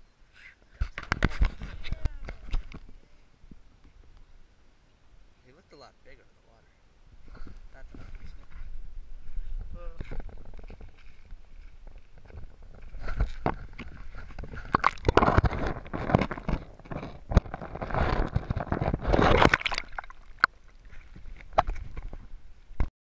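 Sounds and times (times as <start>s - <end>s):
water sloshing and gurgling: 12.2s - 22.9s
splashy clicks: 14.6s - 16.5s, 19.1s - 20.6s.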